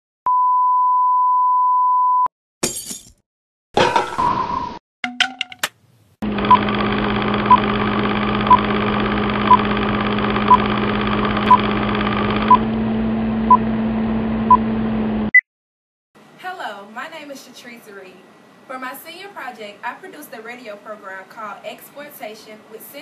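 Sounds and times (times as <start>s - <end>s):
short beeps: 0.3s - 2.3s
film projector whir: 6.2s - 15.3s.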